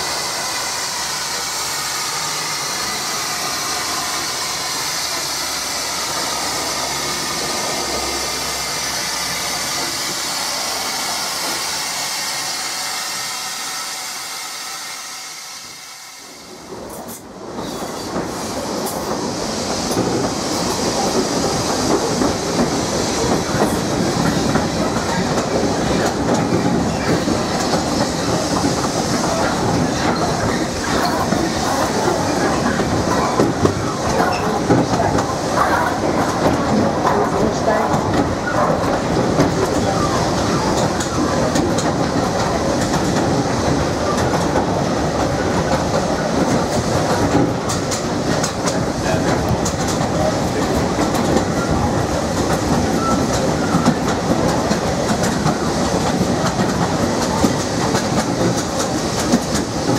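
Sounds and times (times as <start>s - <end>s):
steam locomotive hiss: 0.0s - 59.9s
wheels clattering over rail joints: 21.0s - 59.9s.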